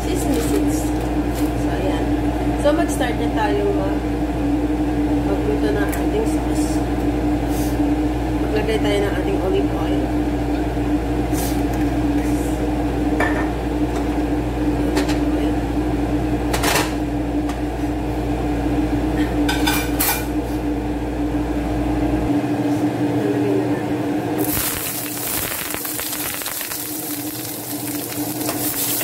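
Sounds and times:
steady mechanical hum: 0.0s - 29.0s
dishes and utensils clinking: 19.5s - 20.3s.

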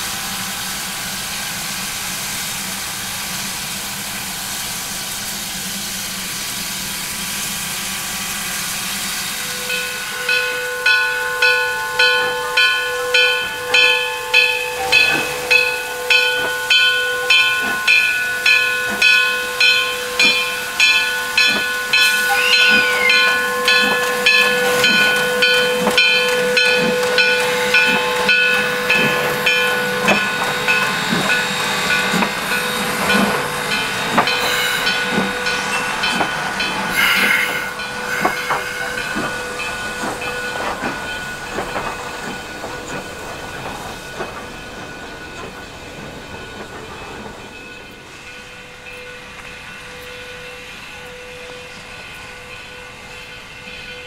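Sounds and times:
steam hissing: 0.0s - 54.0s
locomotive bell ringing: 9.4s - 54.0s
steam blast: 27.6s - 43.5s.

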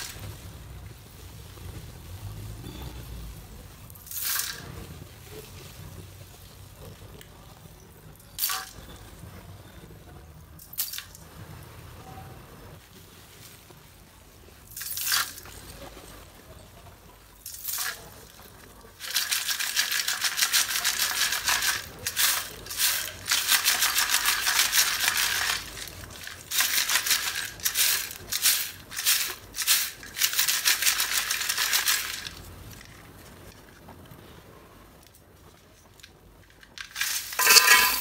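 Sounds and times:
clay chunks rattling in steel tin: 19.0s - 33.0s, 36.0s - 38.0s.

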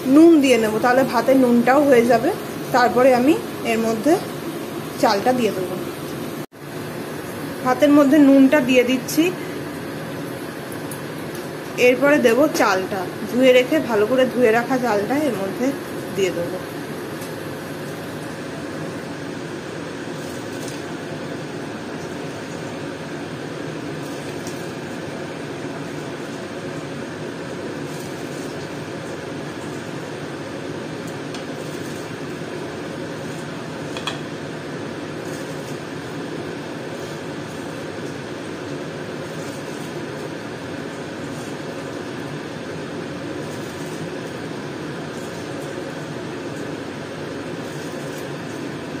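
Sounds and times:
pot of water boiling: 0.0s - 49.0s.

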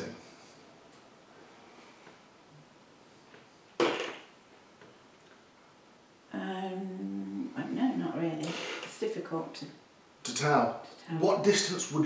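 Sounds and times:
person humming: 6.5s - 7.6s.

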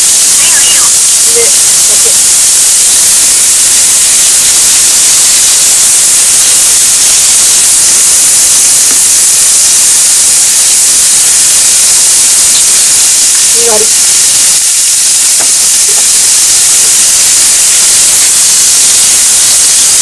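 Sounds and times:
food sizzling in a wok: 0.0s - 20.0s.

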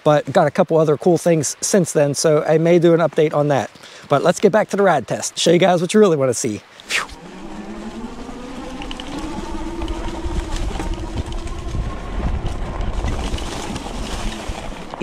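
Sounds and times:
tyres rolling over leaves: 6.8s - 15.0s
wind rumble: 6.8s - 15.0s
electric motor whining: 7.0s - 15.0s.

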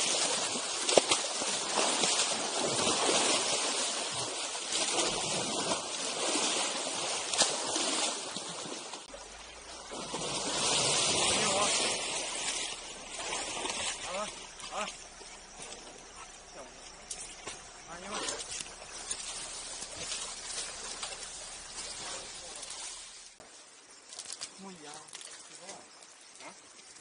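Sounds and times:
water splashing and running: 0.0s - 27.0s.

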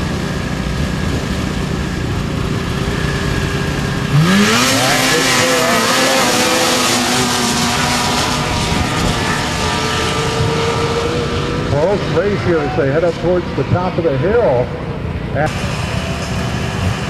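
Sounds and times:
snowmobiles revving at full throttle: 0.0s - 17.0s.

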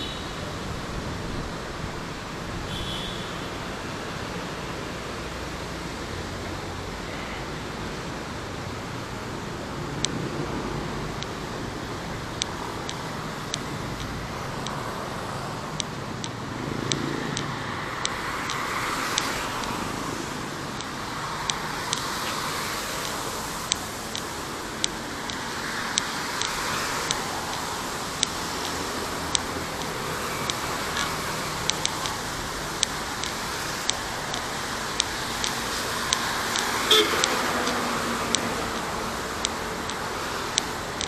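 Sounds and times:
street traffic noise: 0.0s - 41.0s
footsteps on pavement: 12.2s - 40.8s.

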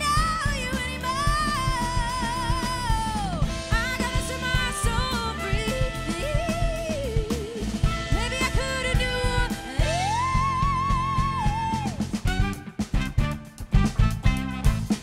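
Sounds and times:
woman singing: 0.0s - 12.2s
funk band playing: 0.0s - 15.0s.

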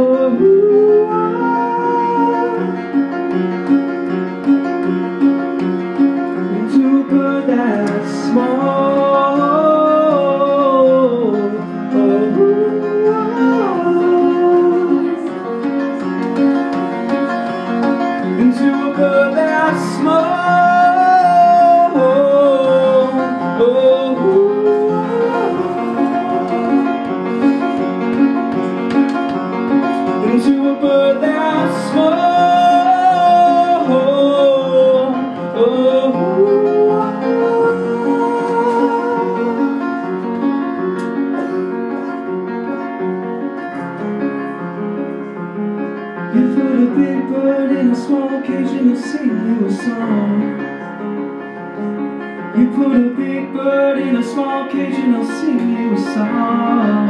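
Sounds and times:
sliding pitch-bending melody: 0.0s - 42.9s
live band with piano: 0.0s - 57.0s.

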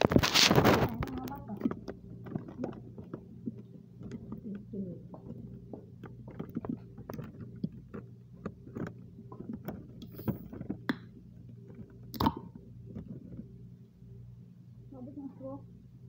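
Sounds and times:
spoon scraping plastic container: 0.0s - 11.0s
steady low hum: 0.0s - 16.0s.

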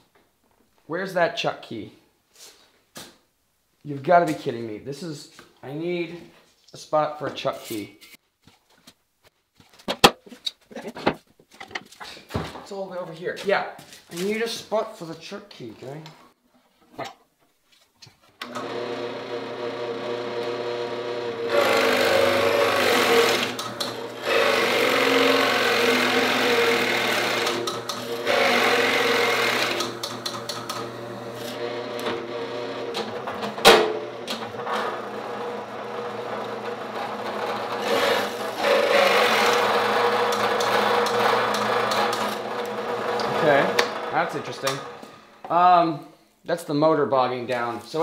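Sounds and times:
drill bit boring into wood: 18.4s - 45.1s
drill press motor running: 18.4s - 45.4s.

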